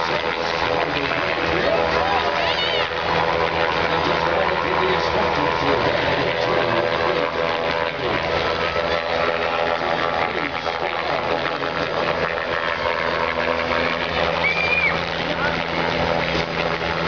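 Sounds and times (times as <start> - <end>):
helicopter rotor beat: 0.0 - 17.0
turbine engine whine: 0.0 - 17.0.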